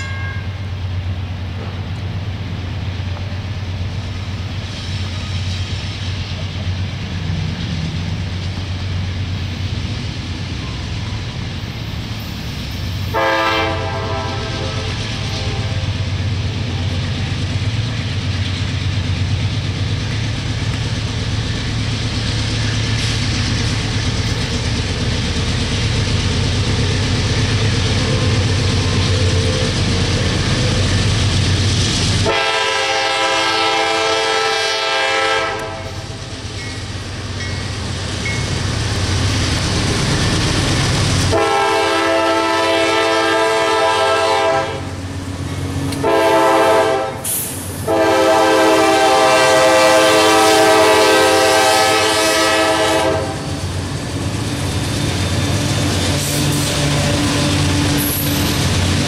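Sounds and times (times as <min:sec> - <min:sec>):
diesel freight train rumbling: 0:00.0 - 0:59.0
train horn blasts: 0:13.1 - 0:16.0, 0:32.2 - 0:36.2, 0:41.3 - 0:45.0, 0:46.0 - 0:53.5.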